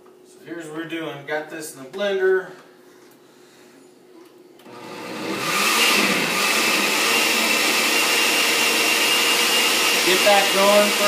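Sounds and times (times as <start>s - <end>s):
blender motor whine: 4.6s - 11.0s.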